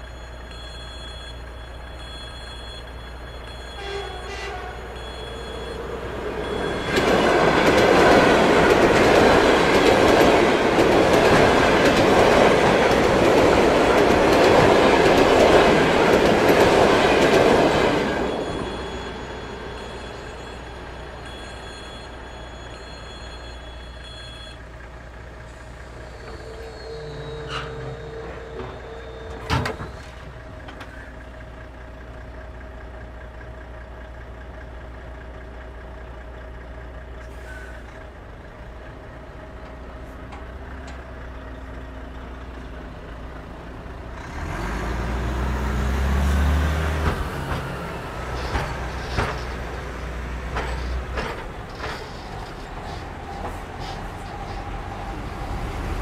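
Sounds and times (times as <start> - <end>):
electronic warning tone: 0.0 - 8.2, 17.5 - 24.6
diesel truck engine: 0.0 - 56.0.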